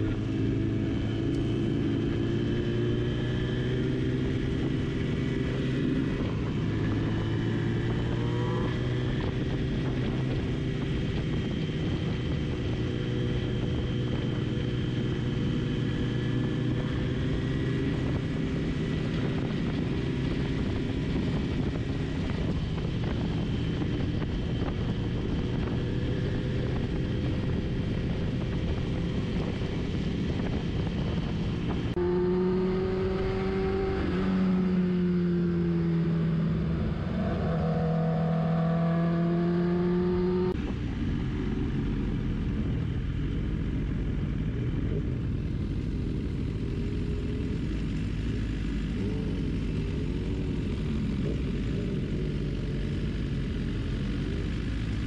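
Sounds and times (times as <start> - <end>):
motorcycle engine: 0.0 - 55.0.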